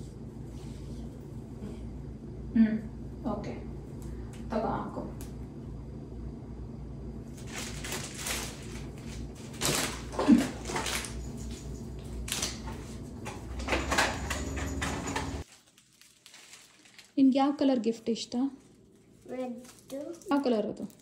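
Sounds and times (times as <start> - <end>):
steady low hum: 0.0 - 15.4
rustling of plastic branches: 7.3 - 11.2, 15.4 - 21.0.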